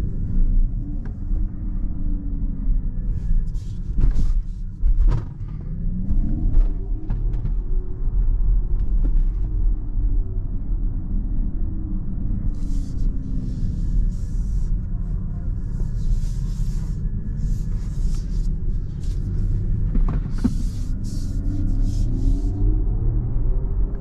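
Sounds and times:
tyre and road rumble: 12.3 - 24.0.

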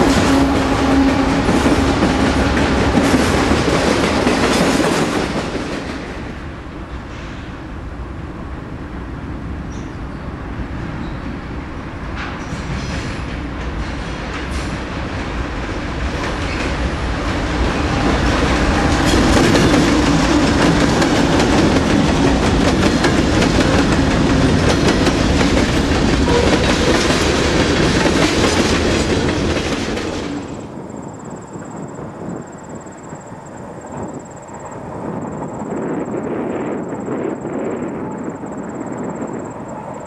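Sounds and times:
train wheels clicking over rails: 0.0 - 7.6, 12.1 - 30.8
diesel locomotive engines: 0.0 - 40.0.

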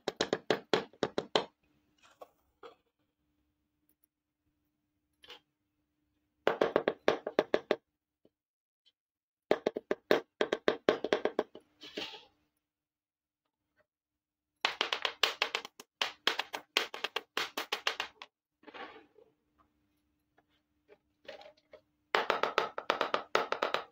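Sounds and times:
plastic toy pieces tapping on board: 0.0 - 1.5, 14.6 - 18.3, 22.2 - 23.9.

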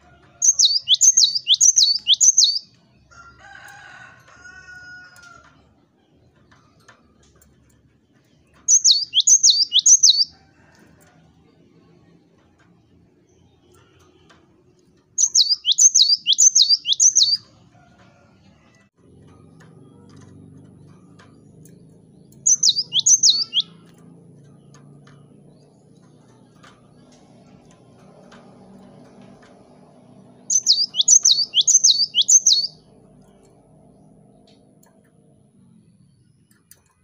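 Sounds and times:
bird whistling descending notes: 0.4 - 2.6, 8.7 - 10.3, 15.2 - 17.4, 22.5 - 23.8, 30.5 - 32.8.

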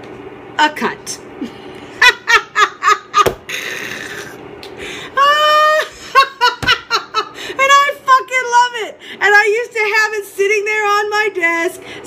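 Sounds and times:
woman laughing hard: 1.9 - 4.4, 5.2 - 7.6.

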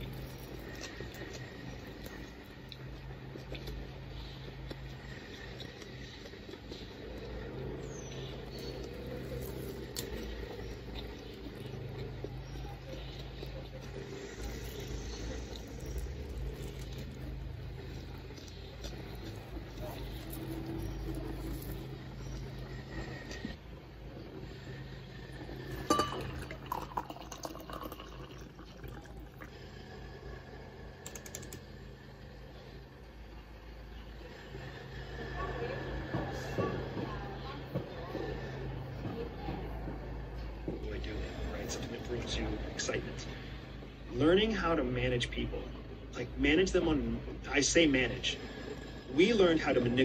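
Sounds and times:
low background rumble: 0.0 - 50.0
liquid pouring into a mug: 25.6 - 29.7.

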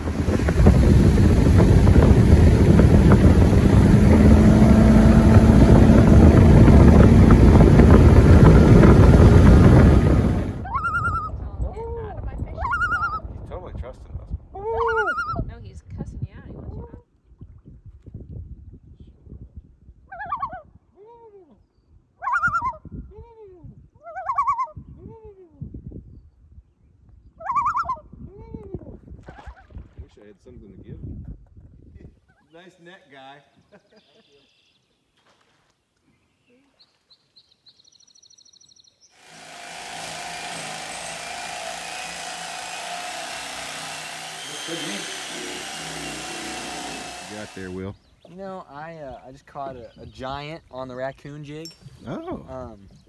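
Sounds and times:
electric knife buzzing: 0.0 - 10.6, 39.2 - 47.8
low rumbling noise: 0.0 - 14.6.

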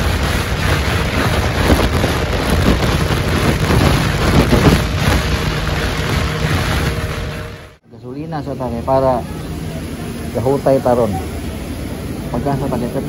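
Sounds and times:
motorcycle engine running: 0.0 - 7.8
wind buffeting microphone: 0.0 - 7.8.

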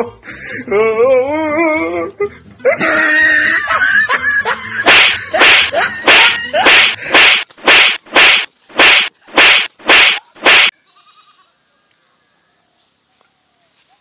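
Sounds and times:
swishing hit sound effects: 4.8 - 10.7.

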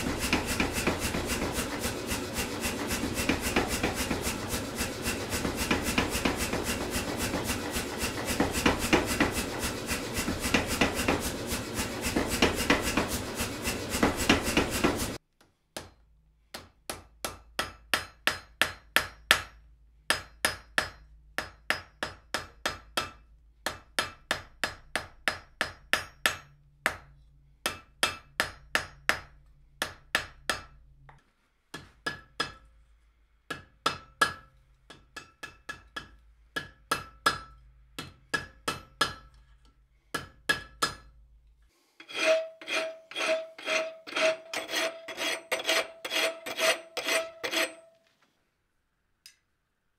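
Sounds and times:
hand hammer striking steel on anvil: 0.0 - 15.2, 15.8 - 32.7, 33.5 - 39.4, 40.1 - 41.2, 42.0 - 48.0
power hammer pounding steel: 0.0 - 15.2.

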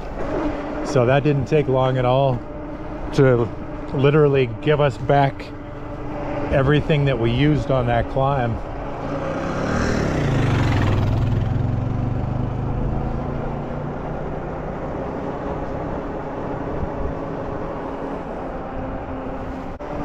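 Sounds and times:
steady low hum: 0.0 - 11.8
motorcycle passing: 0.0 - 20.0
wind and road rush: 0.0 - 20.0.

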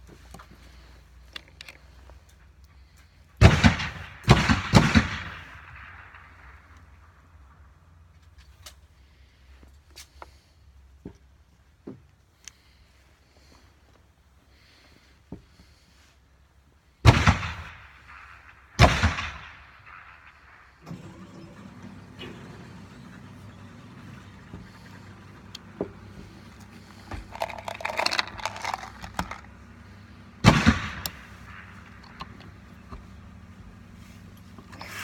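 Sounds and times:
steady low hum: 21.5 - 35.0.

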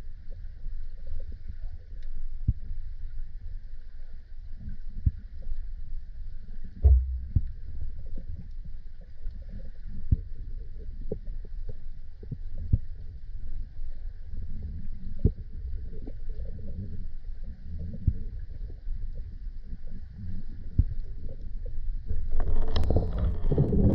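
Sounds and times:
muffled underwater rumble: 0.0 - 23.9
sharp underwater clicks and knocks: 6.8 - 8.6, 22.1 - 23.9.

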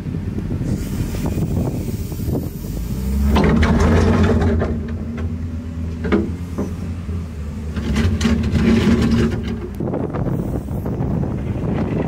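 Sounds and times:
wheel loader diesel engine: 0.0 - 12.0
bucket scraping and knocking: 3.2 - 5.3, 7.7 - 9.8.

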